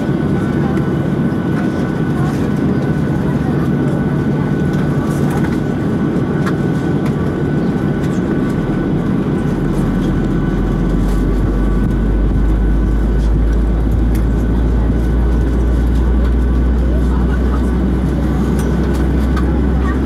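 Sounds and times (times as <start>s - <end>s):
deep low rumble: 0.0s - 20.0s
jet engines whining and rumbling: 0.0s - 20.0s.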